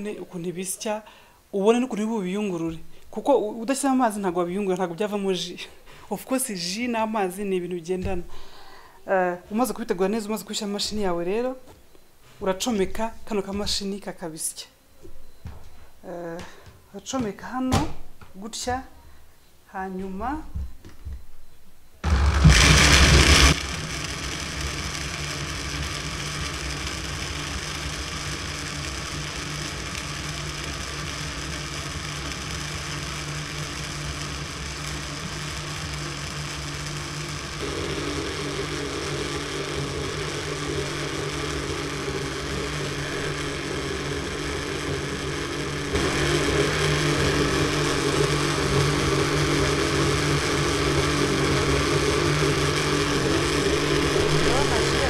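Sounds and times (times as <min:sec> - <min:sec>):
blender motor running: 0:22.0 - 0:55.0.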